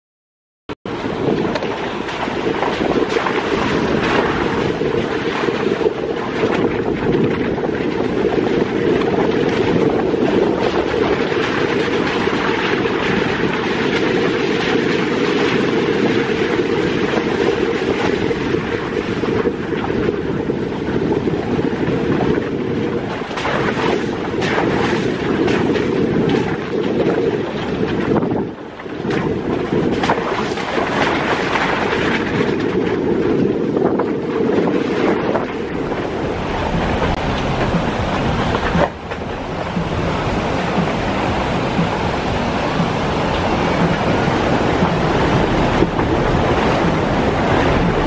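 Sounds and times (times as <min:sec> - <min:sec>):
knocks and rattles: 0:35.1 - 0:48.0
tyres and engine rumbling: 0:35.1 - 0:48.0.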